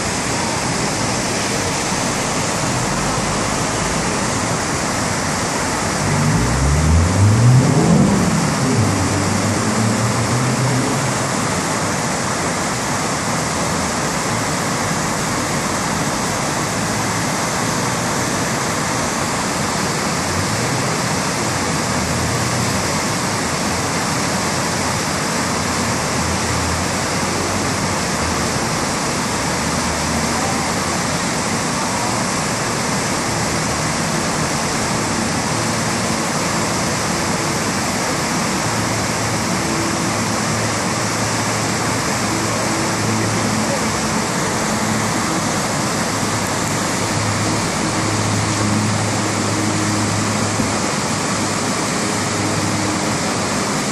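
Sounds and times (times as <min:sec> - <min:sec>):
river rushing through rapids: 0:00.0 - 0:53.9
vehicle engine accelerating past: 0:05.7 - 0:12.3.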